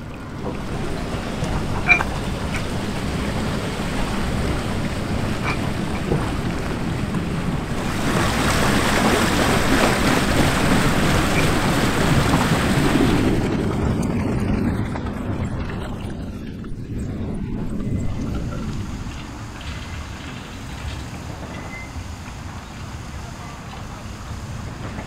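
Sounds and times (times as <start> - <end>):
steel carriage rumbling on rails: 0.0 - 25.0
water rushing and splashing: 0.0 - 25.0
faint metal clinks: 1.8 - 2.6.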